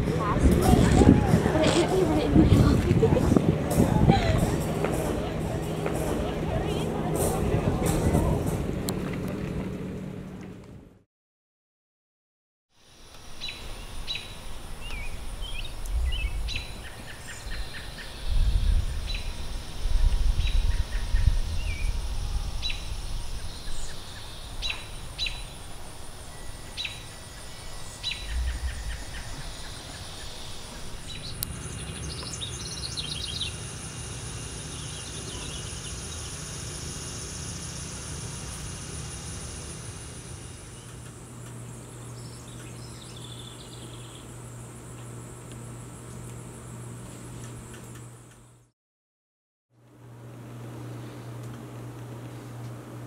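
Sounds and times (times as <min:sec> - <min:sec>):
birds chirping: 0:13.4 - 0:19.6, 0:22.6 - 0:44.4
low rumble: 0:15.4 - 0:17.0, 0:25.4 - 0:34.8.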